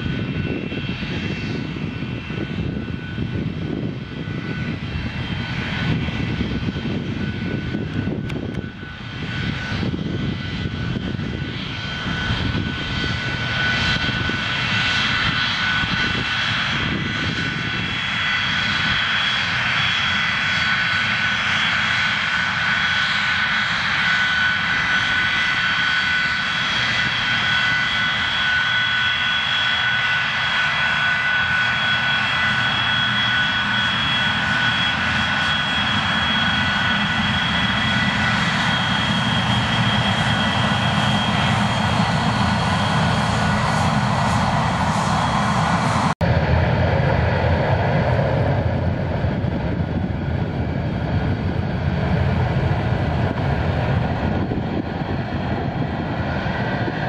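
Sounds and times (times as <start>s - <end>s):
jet engine whine: 0.0s - 57.0s.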